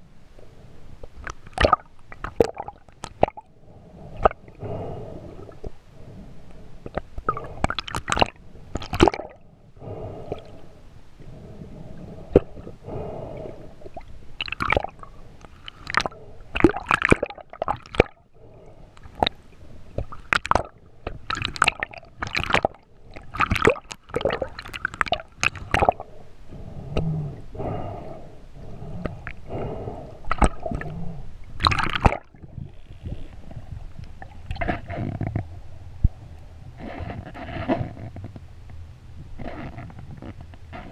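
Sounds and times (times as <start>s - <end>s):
underwater gurgling and swishing: 0.0s - 40.9s
sharp underwater crackles and pops: 1.0s - 3.5s, 6.8s - 9.4s, 13.8s - 18.2s, 18.9s - 26.1s, 30.2s - 30.9s, 31.5s - 40.9s.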